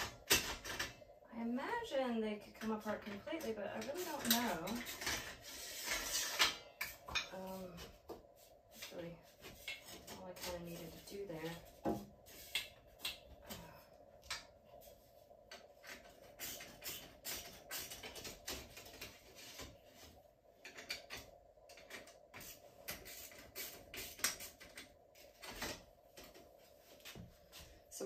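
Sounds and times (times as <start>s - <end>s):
faint steady hum: 0.0s - 28.0s
sheet metal clicks and scrapes: 2.6s - 7.9s.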